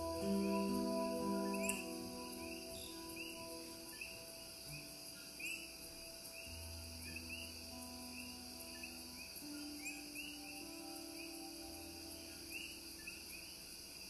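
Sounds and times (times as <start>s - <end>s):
deep drone: 0.0s - 4.8s
quiet ambient music: 0.0s - 14.0s
steady high hiss: 0.0s - 14.0s.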